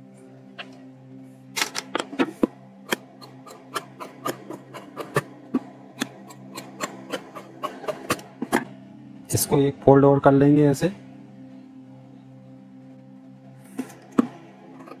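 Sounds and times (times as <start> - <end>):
faint low hum: 4.4 - 15.0.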